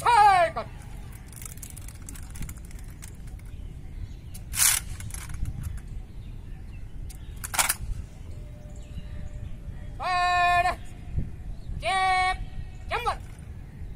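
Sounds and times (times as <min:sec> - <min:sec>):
rifle handling clicks: 0:04.3 - 0:05.9, 0:07.1 - 0:07.9
rifles and hands striking together: 0:07.4 - 0:07.9.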